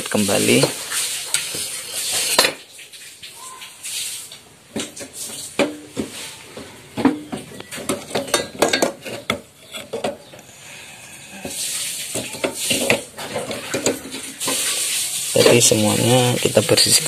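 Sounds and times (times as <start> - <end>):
metal burner parts clinking: 7.8 - 10.3.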